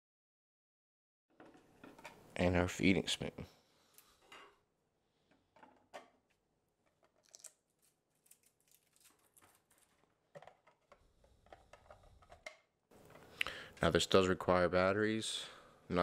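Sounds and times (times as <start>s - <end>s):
plastic parts clicking and tapping: 9.1s - 13.3s.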